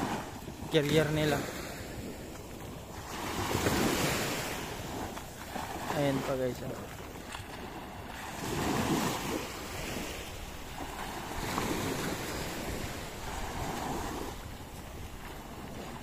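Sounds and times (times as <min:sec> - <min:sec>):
small waves breaking on beach: 0:00.0 - 0:16.0
wind buffeting microphone: 0:06.8 - 0:16.0.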